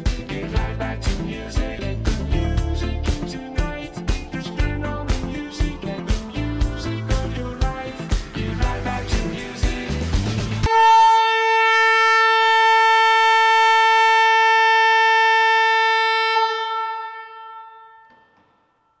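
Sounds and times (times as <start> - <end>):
music: 0.0 - 10.7
car horn long blast: 10.6 - 18.1.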